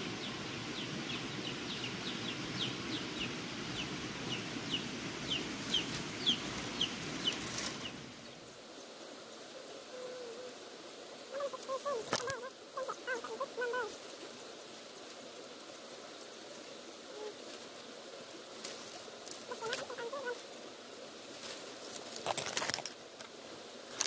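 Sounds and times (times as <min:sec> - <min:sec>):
poultry calling: 0:11.3 - 0:14.0, 0:19.4 - 0:20.4.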